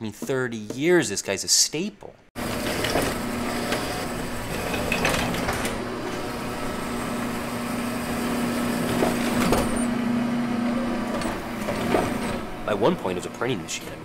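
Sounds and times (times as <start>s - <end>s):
printing press motor hum: 2.4s - 13.5s.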